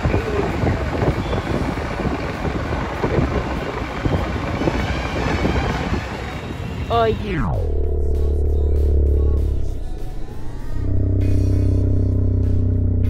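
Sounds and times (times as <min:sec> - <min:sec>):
wind buffeting microphone: 0:00.0 - 0:07.1
traffic and road rumble: 0:00.0 - 0:09.9.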